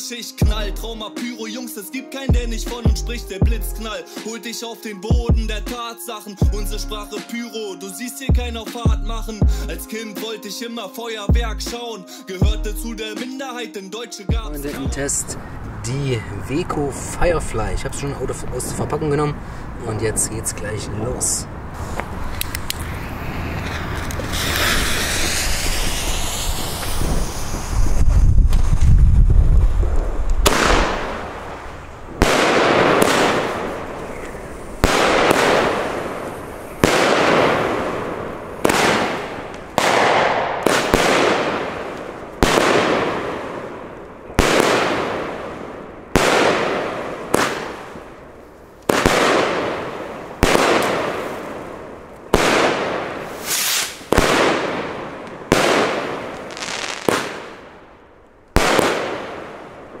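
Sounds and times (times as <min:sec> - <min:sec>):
firework bangs: 0:21.8 - 1:00.0
firework crackle: 0:21.8 - 1:00.0.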